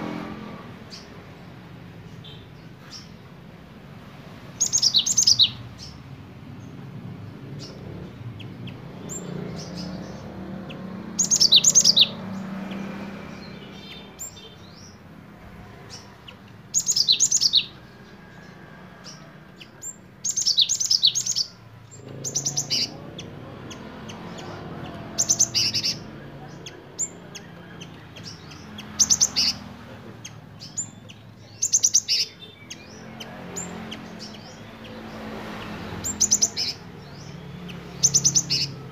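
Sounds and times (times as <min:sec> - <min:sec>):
bird singing high repeated notes: 0:08.4 - 0:15.0.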